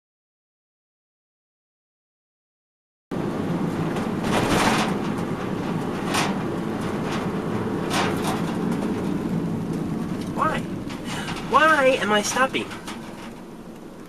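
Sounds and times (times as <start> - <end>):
car engine and tyre rumble: 3.1 - 14.0.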